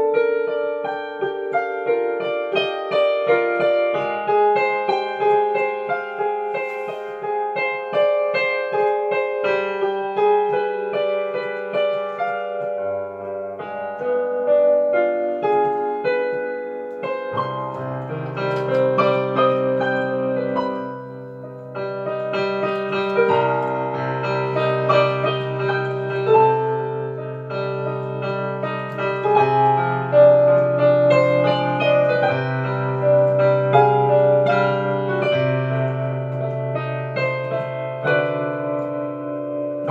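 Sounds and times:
solo piano: 0.0s - 39.9s.

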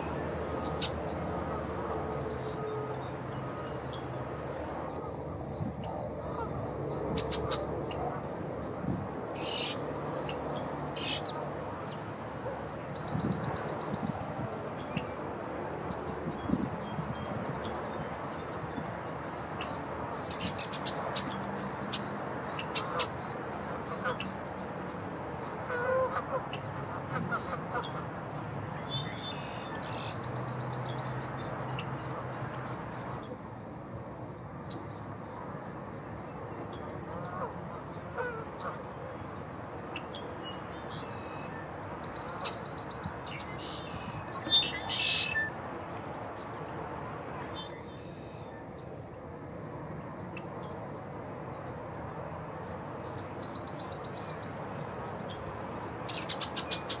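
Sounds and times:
blackbirds chirping and trilling: 0.6s - 15.2s, 34.6s - 49.0s, 50.7s - 57.0s.

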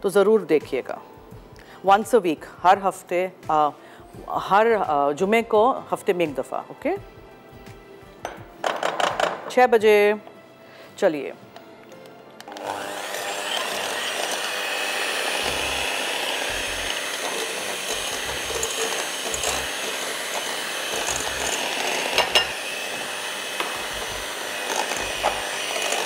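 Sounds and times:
electric hand mixer running: 12.4s - 26.0s.

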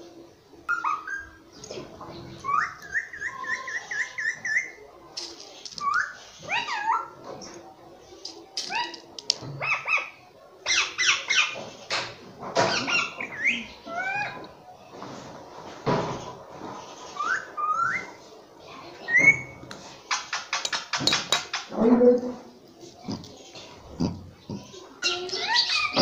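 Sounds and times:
parakeet chattering: 23.0s - 26.0s.

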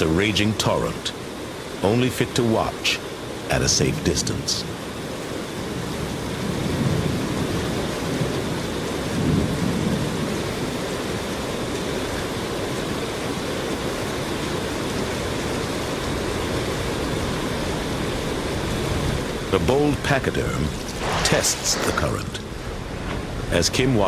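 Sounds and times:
river torrent rushing: 0.0s - 24.0s
low rumbling swells: 20.4s - 24.0s.

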